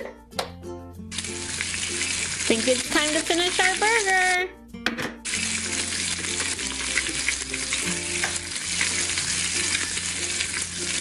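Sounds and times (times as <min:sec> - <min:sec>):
burger sizzling sound effect: 0:05.3 - 0:11.0.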